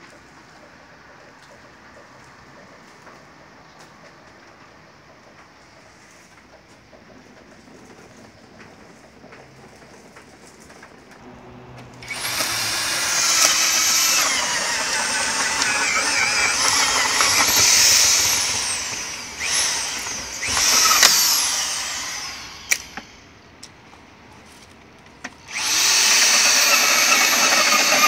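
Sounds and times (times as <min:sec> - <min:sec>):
power drill boring into wood: 0:12.0 - 0:23.2, 0:25.5 - 0:28.0.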